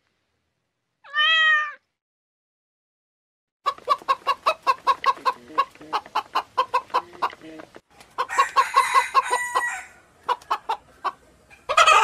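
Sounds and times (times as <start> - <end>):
kitten meowing: 1.1 - 1.8
hens clucking: 3.6 - 12.0.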